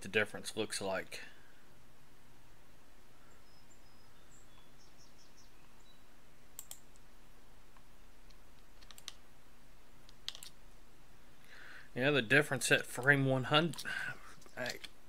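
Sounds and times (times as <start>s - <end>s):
faint room hum: 0.0s - 15.0s
keyboard keys clicking: 6.6s - 6.9s, 8.7s - 9.2s, 10.1s - 10.5s.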